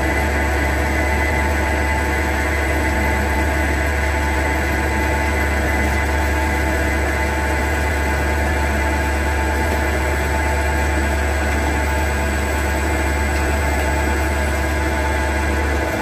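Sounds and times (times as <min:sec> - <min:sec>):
lathe machine hum: 0:00.0 - 0:16.0.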